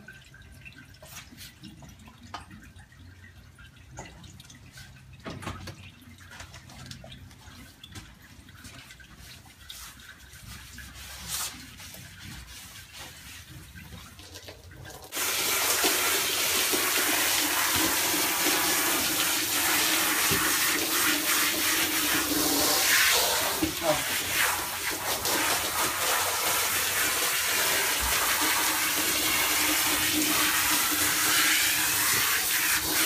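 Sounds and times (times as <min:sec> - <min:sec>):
water splashing on rubber floor: 0:04.1 - 0:33.0
garden hose spraying water: 0:15.1 - 0:33.0.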